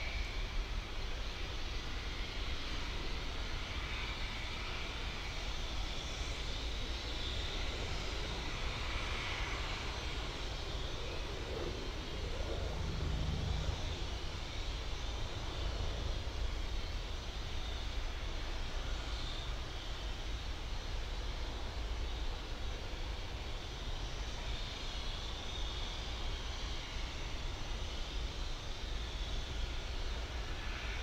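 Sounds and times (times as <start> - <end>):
distant helicopter rumble: 6.4 - 18.8.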